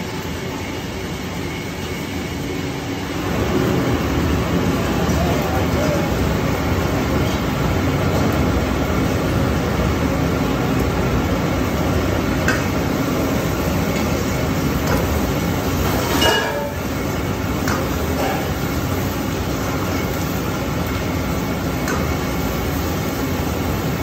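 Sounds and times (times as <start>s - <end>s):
gas burner roaring: 0.0s - 24.0s
metal ladle clinking on wok: 16.0s - 16.9s.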